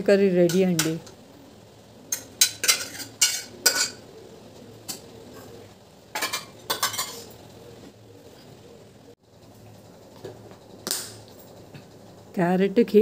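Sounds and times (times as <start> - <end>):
spoon scraping steel pots: 2.1 - 4.1, 4.9 - 7.4.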